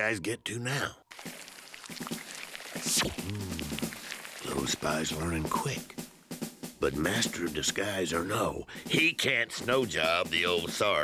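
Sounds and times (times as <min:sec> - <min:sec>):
faint hiss: 0:01.1 - 0:06.2.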